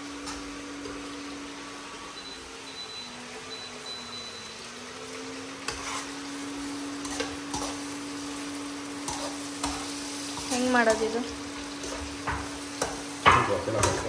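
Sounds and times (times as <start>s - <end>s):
low hum from cooktop: 0.0s - 14.0s
onions sizzling in oil: 0.0s - 14.0s
metal spatula scraping a pan: 5.6s - 6.2s, 7.0s - 8.2s, 9.0s - 11.0s.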